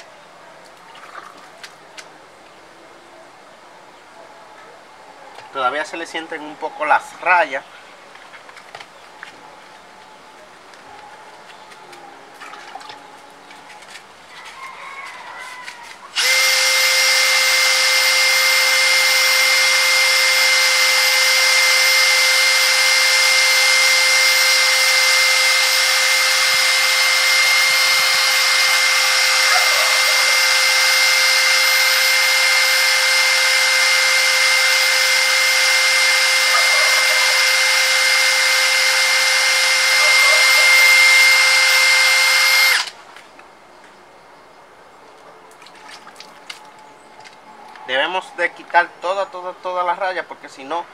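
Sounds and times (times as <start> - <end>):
drill motor whine: 16.2 - 42.9.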